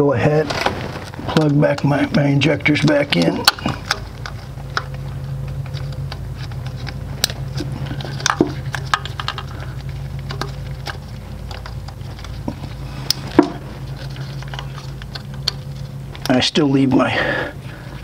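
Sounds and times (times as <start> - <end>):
steady low hum: 0.0 - 18.0
plastic connectors clicking: 2.8 - 16.3.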